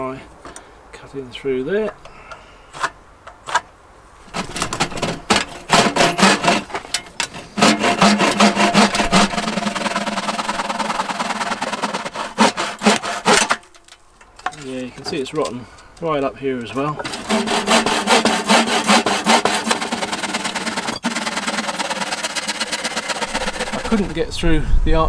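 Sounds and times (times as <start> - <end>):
bow saw cutting wood: 4.3 - 13.8, 17.0 - 24.3.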